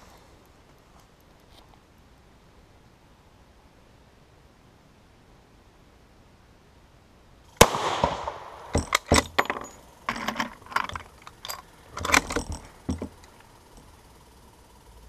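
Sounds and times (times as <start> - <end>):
rifle shot: 7.6 - 9.4
rifle action clacks and clicks: 8.1 - 13.9.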